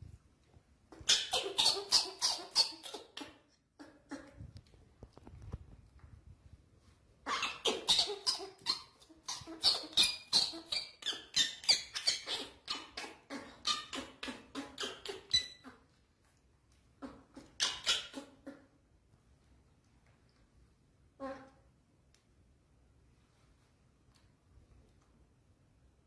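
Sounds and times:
baby monkey shrill squeals: 1.0s - 3.4s, 7.3s - 15.8s, 17.0s - 18.4s.

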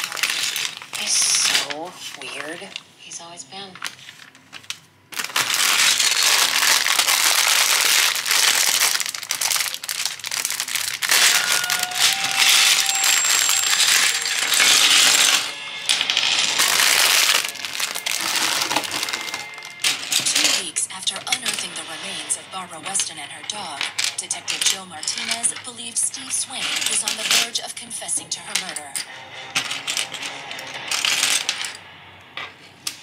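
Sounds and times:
plastic bag crinkling: 0.0s - 2.8s, 3.7s - 15.5s, 16.4s - 20.6s
plastic bricks clattering on table: 0.0s - 2.8s, 4.5s - 21.8s, 22.8s - 25.7s, 26.6s - 27.6s, 28.5s - 31.8s.

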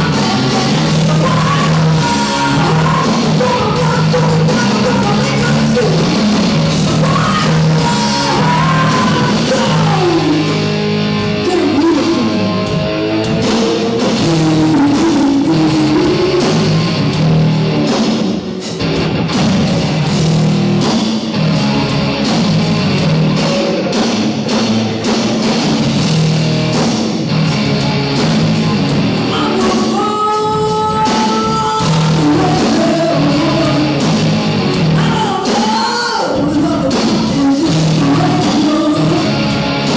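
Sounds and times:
person singing: 0.0s - 6.2s, 6.8s - 10.6s, 11.4s - 16.9s, 29.3s - 34.1s, 34.9s - 39.4s
bass guitar: 0.0s - 39.9s
drums: 0.0s - 39.9s
electric guitar: 0.0s - 39.9s.

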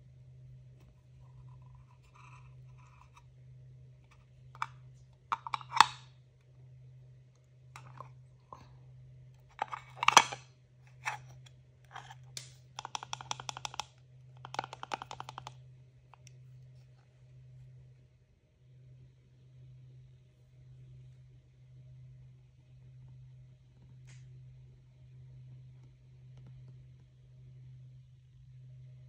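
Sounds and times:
plastic toys clicking: 12.8s - 13.9s, 14.5s - 15.5s.

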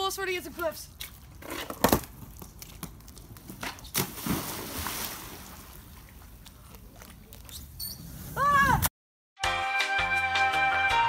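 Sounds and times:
splash into pool: 3.8s - 5.9s
water churning and sloshing: 3.9s - 7.0s.

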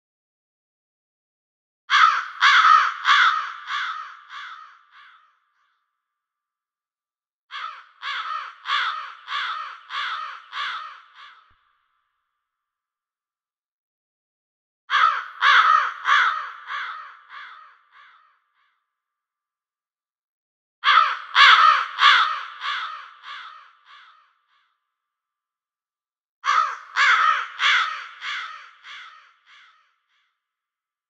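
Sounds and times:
crow cawing: 1.9s - 6.0s, 7.5s - 12.2s, 14.9s - 19.0s, 20.8s - 25.0s, 26.4s - 30.6s.

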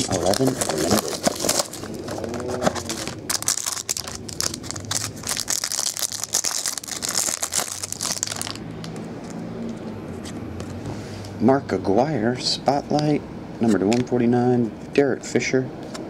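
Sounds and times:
plastic wrapping crinkling: 0.0s - 9.4s.

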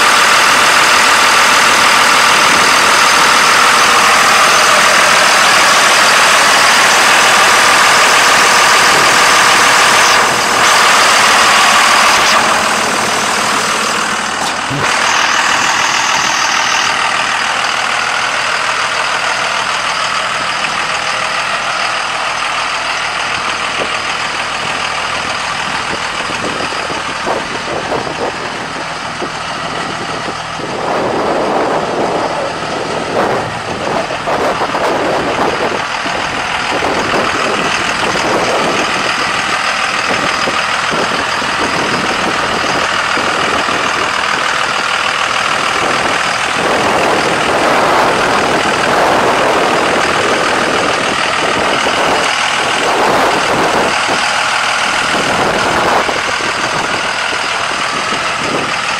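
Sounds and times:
diesel engine idling: 0.0s - 58.9s
rushing noise: 0.0s - 58.9s.

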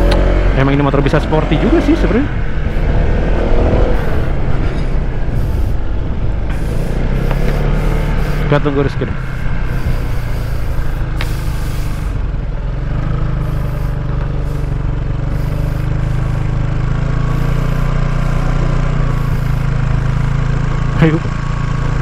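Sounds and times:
scooter engine running: 0.0s - 22.0s
wind noise on microphone: 2.2s - 12.4s.

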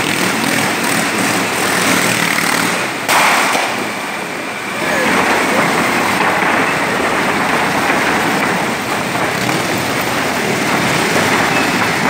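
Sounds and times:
crowd applauding: 4.7s - 9.6s.

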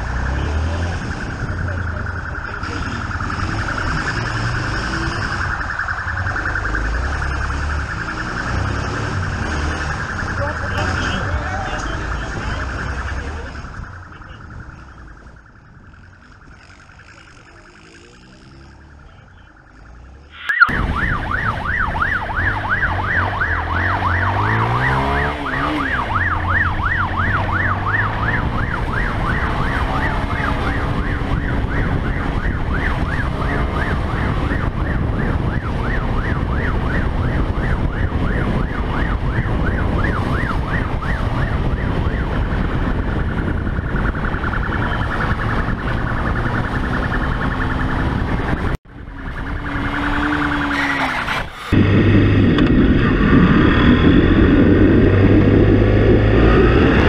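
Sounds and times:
motorcycle engine revving: 0.0s - 57.0s
police siren yelping: 0.0s - 57.0s
wind rushing: 20.3s - 50.3s, 51.4s - 57.0s.

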